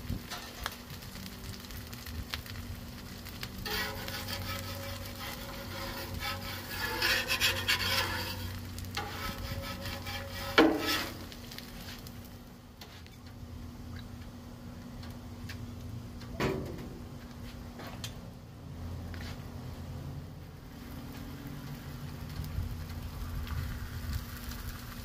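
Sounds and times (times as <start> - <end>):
light sizzling: 0.0 - 25.0
metal spatula scraping griddle: 0.3 - 0.8, 3.3 - 12.0.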